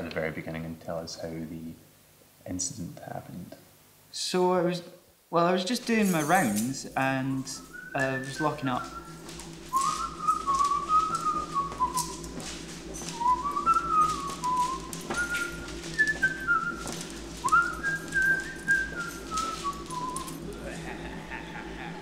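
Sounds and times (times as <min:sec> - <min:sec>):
low steady hum: 0:00.0 - 0:22.0
man whistling a tune: 0:07.5 - 0:12.4, 0:13.0 - 0:20.5.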